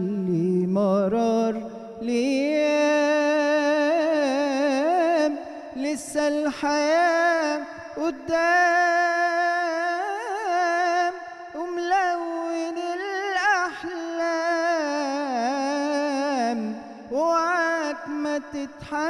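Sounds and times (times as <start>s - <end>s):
man singing with ornamented runs: 0.0s - 19.0s.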